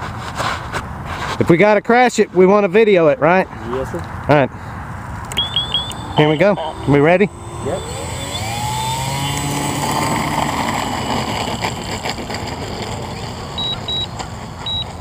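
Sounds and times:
rc plane motor whining: 0:06.4 - 0:15.0.

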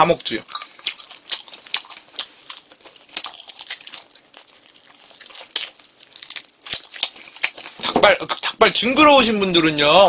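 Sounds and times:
wet chewing clicks and crunches: 0:00.0 - 0:07.8.

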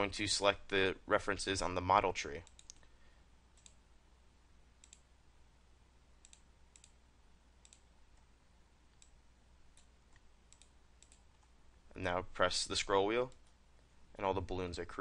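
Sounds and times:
background hiss: 0:00.0 - 0:15.0
computer mouse clicks: 0:02.4 - 0:02.9, 0:03.6 - 0:03.8, 0:04.8 - 0:05.1, 0:06.2 - 0:07.0, 0:07.6 - 0:08.3, 0:08.9 - 0:11.5, 0:13.3 - 0:13.6.

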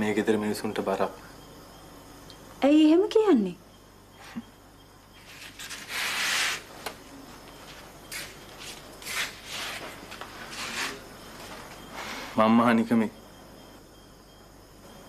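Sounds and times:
scraping rustle: 0:05.2 - 0:06.9, 0:07.5 - 0:12.4
rustling and shuffling: 0:05.2 - 0:12.4.

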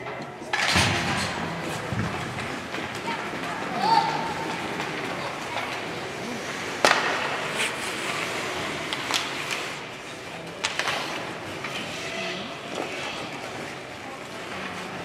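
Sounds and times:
arena noise: 0:00.0 - 0:15.0
skate blades scraping ice: 0:01.6 - 0:15.0
stick and puck knocks: 0:06.6 - 0:07.6, 0:08.8 - 0:09.7, 0:10.6 - 0:11.7.

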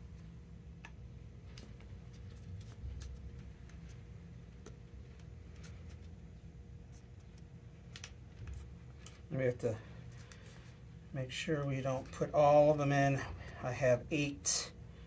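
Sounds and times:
low room hum: 0:00.0 - 0:15.0
faint plastic clicks and rustling: 0:06.9 - 0:09.3.

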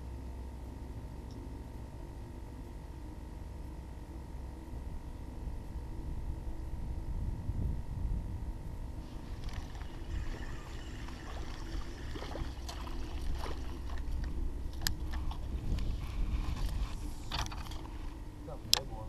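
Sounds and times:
wind rumbling on microphone: 0:05.5 - 0:18.3
water lapping against a canoe: 0:09.0 - 0:18.2.

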